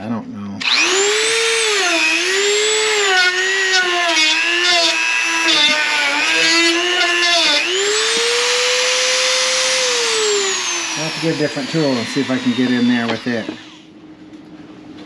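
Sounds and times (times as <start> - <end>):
electric grinder on metal: 0.6 - 13.9.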